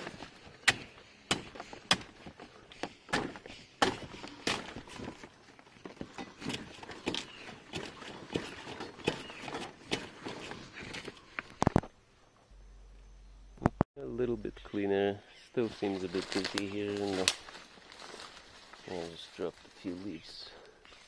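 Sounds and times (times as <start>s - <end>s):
leaves rustling: 0.0s - 11.8s, 15.3s - 21.0s
dead leaves snapping: 15.8s - 20.2s.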